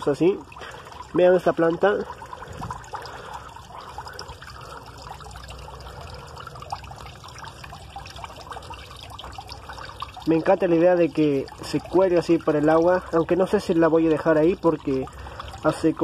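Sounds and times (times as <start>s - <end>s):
water trickling into pond: 0.0s - 16.0s.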